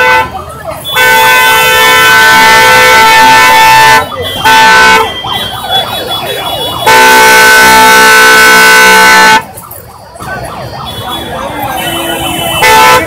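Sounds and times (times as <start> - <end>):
vehicle horn blast: 6.8 - 9.4, 11.7 - 13.0.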